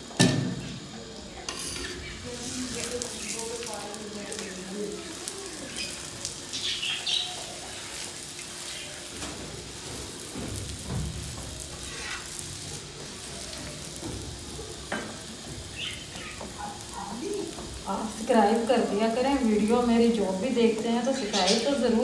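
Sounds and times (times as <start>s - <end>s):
flatbread sizzling in pan: 0.0s - 22.0s
metal spatula scraping and tapping: 1.5s - 2.0s, 11.8s - 12.4s.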